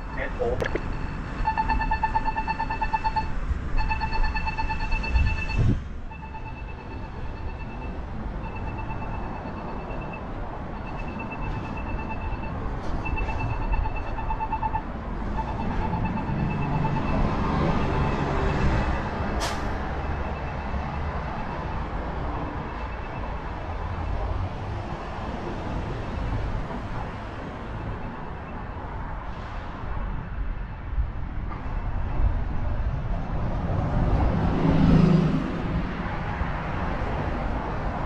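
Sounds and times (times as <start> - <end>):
electronic beeper pulses: 0.0 - 10.2, 10.8 - 14.8
street traffic noise: 0.0 - 38.0.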